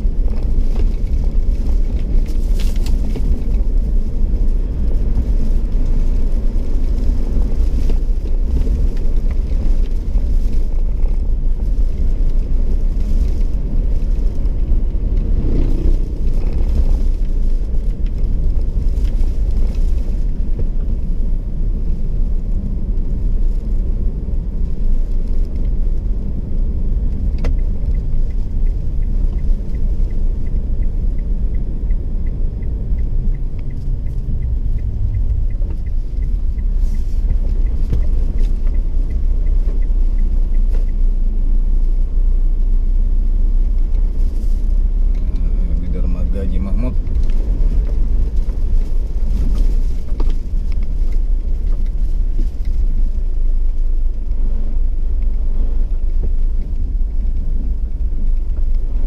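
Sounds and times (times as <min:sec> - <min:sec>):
road and engine rumble in cab: 0:00.0 - 0:59.0
faint regular ticking: 0:24.9 - 0:41.8.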